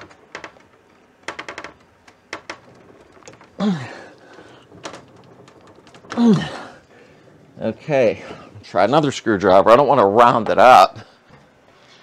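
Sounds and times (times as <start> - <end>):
person grunting: 3.6 - 4.2.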